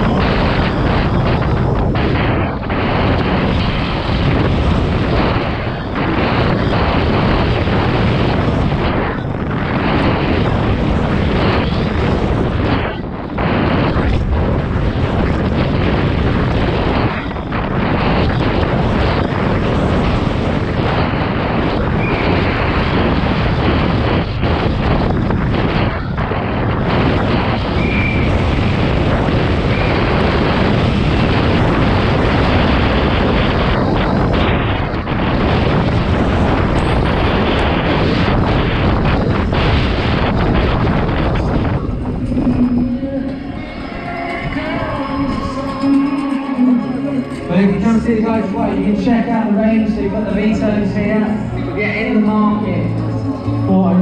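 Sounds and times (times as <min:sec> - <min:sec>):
bike tyres rumbling and rattling: 0:00.0 - 0:49.9
wind buffeting microphone: 0:00.0 - 0:54.0.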